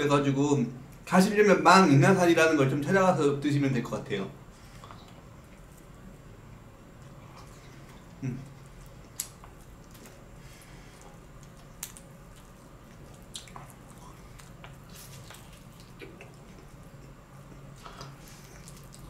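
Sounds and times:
faint low hum: 0:00.0 - 0:19.0
biting and chewing chicken: 0:07.0 - 0:19.0.

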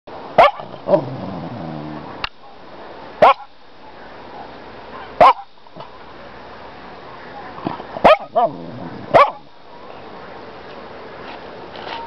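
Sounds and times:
small dog barking: 0:00.4 - 0:00.8, 0:03.2 - 0:03.5, 0:04.3 - 0:05.5, 0:08.0 - 0:09.5
dog growling: 0:00.7 - 0:02.2, 0:07.7 - 0:09.2.

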